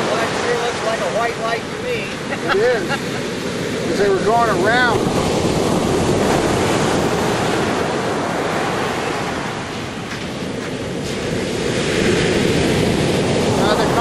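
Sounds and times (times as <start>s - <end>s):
ocean surf washing on beach: 0.0s - 14.0s
wind on microphone: 0.0s - 14.0s.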